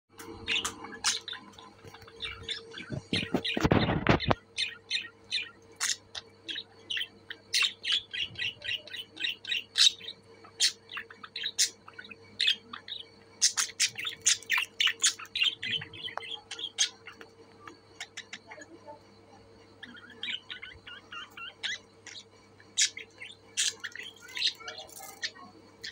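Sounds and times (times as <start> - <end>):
budgerigars chirping and chattering: 0.2 - 25.9.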